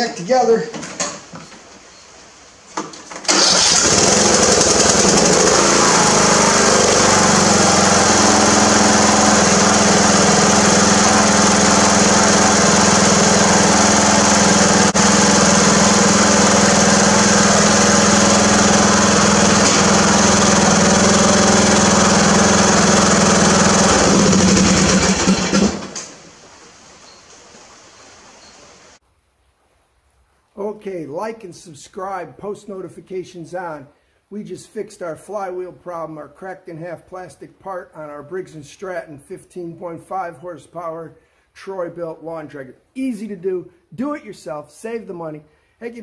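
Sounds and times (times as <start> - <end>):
lawn tractor engine running: 3.1 - 26.3.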